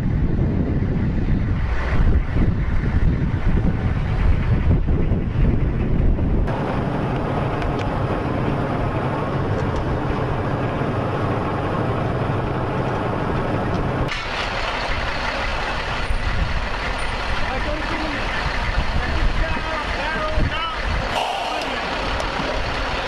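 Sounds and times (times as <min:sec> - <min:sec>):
vehicle engine and tyres rumbling: 0:00.0 - 0:23.0.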